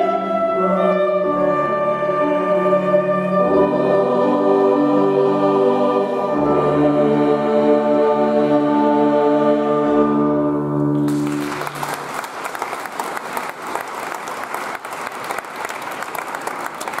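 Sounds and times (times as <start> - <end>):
choir with strings and organ: 0.0 - 11.1
audience applause: 11.0 - 17.0.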